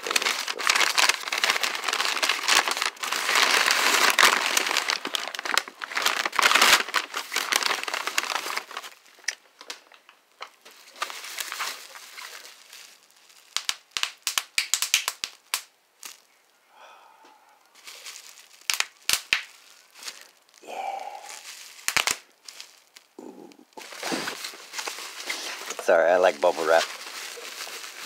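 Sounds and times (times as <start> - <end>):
bubble wrap popping: 0.0 - 16.5, 17.7 - 28.0
plastic crinkling: 0.0 - 16.5, 17.7 - 28.0.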